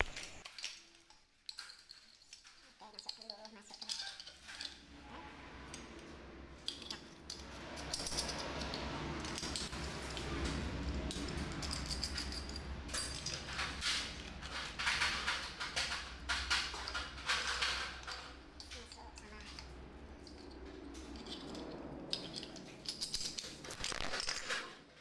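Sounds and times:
lamp parts clicking and clattering: 0.0 - 25.0
steady low rumble: 4.7 - 23.8.

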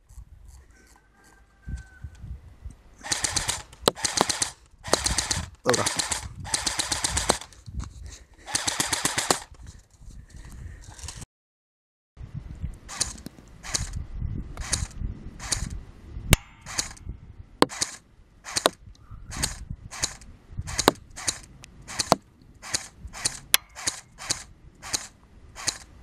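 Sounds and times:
airsoft rifle shots snapping: 3.0 - 7.5, 8.5 - 9.5, 14.6 - 15.7, 16.3 - 17.0, 17.6 - 25.9.

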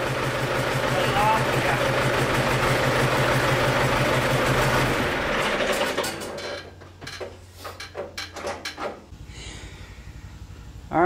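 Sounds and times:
machine humming: 0.0 - 6.3
metallic clicks and knocks: 5.9 - 9.1.

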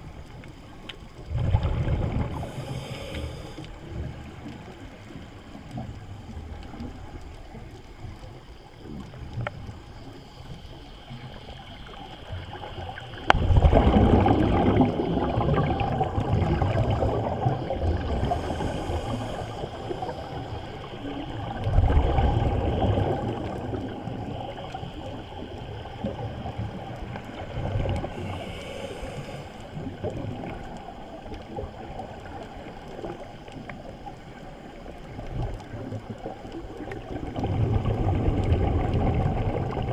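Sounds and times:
low underwater hiss: 0.0 - 39.9
underwater bubbles gurgling: 0.0 - 39.9.

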